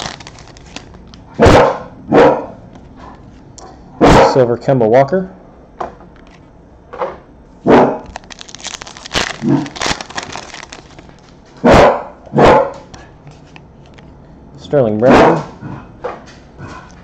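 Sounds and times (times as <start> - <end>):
foil card pack tearing and crinkling: 0.0 - 1.2, 8.0 - 11.4
dog barking loudly: 1.4 - 2.6, 3.6 - 4.4, 7.7 - 8.1, 11.6 - 12.9, 15.0 - 15.6.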